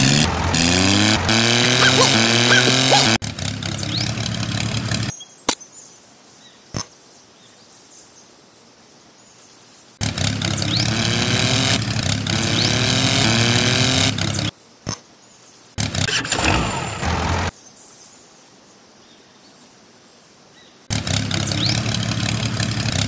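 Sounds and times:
tractor engine revving: 0:00.0 - 0:05.1, 0:10.0 - 0:14.5, 0:15.8 - 0:17.5, 0:20.9 - 0:23.0.

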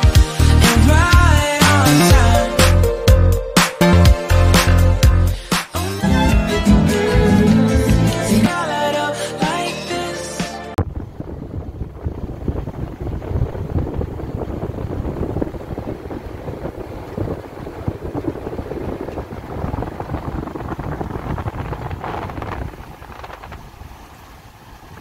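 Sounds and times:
vehicle rumble: 0:04.3 - 0:08.5, 0:10.7 - 0:25.0
wind buffeting a microphone: 0:10.8 - 0:25.0.

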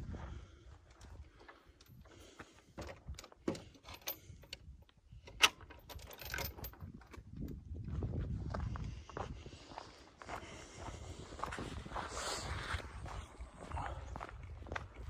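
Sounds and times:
clicks and clinks: 0:05.2 - 0:06.8
footsteps: 0:07.4 - 0:15.0.

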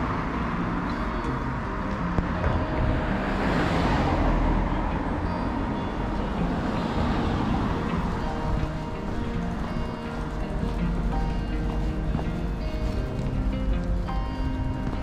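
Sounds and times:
road traffic: 0:00.0 - 0:15.0
vehicle passing by: 0:01.4 - 0:10.3.

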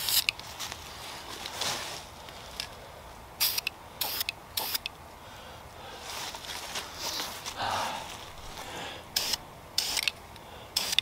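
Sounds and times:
aerosol spray bursts: 0:03.4 - 0:04.8, 0:09.2 - 0:10.1, 0:10.8 - 0:11.0.

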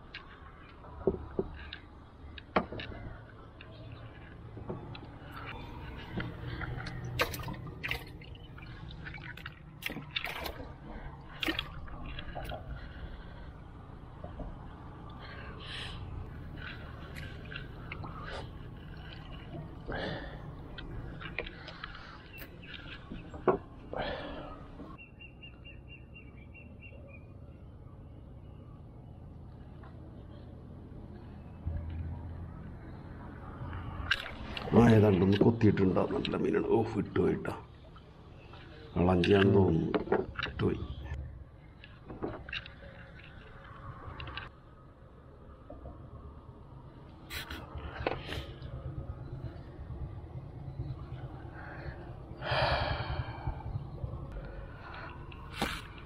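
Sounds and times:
paddle splashing water: 0:06.6 - 0:13.3
bird chirping: 0:14.3 - 0:32.0.

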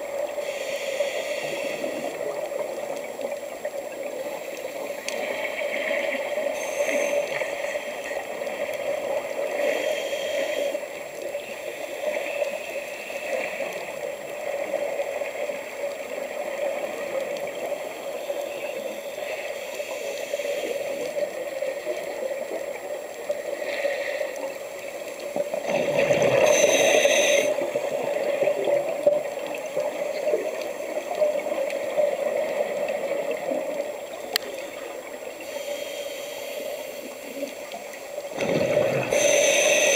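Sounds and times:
muffled underwater hum: 0:00.0 - 0:39.9
scuba regulator breathing: 0:00.3 - 0:02.4, 0:06.3 - 0:08.3, 0:09.3 - 0:13.7, 0:18.2 - 0:21.3, 0:25.9 - 0:27.7, 0:35.4 - 0:37.8, 0:38.5 - 0:39.9.

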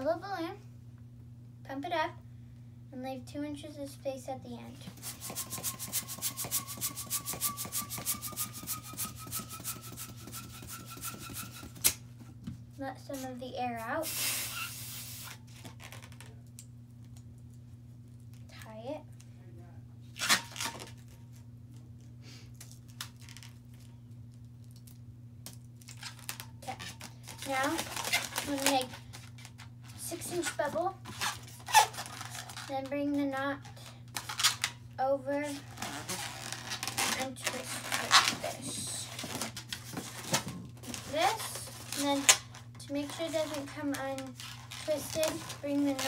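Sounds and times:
steady low hum: 0:00.0 - 0:46.0
hand pump air strokes: 0:04.9 - 0:12.0
hands rubbing a balloon: 0:04.9 - 0:12.0, 0:26.0 - 0:29.6, 0:30.3 - 0:32.7, 0:35.6 - 0:42.3.

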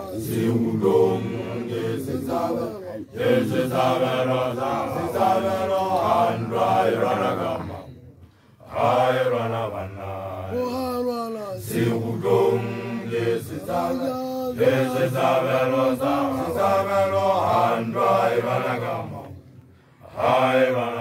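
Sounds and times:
man chanting: 0:10.0 - 0:11.9.

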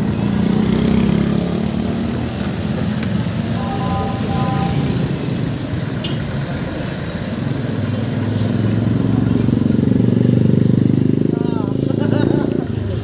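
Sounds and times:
vehicle engine approaching: 0:00.0 - 0:11.3
road traffic rumble: 0:00.0 - 0:13.0
thin high whine: 0:03.6 - 0:06.3.

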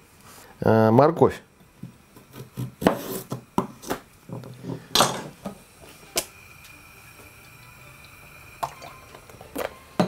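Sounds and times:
faint high whine: 0:05.5 - 0:10.0.

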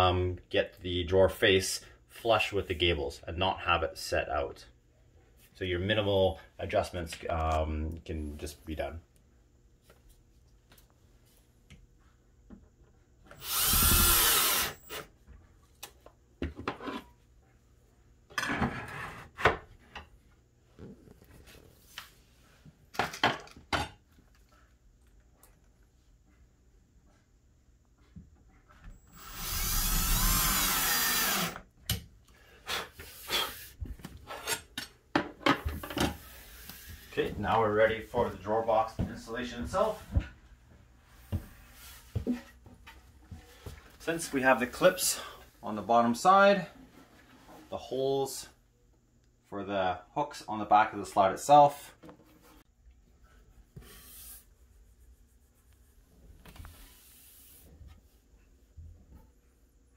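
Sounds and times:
cordless drill driving screw: 0:13.4 - 0:15.1, 0:29.0 - 0:31.6.

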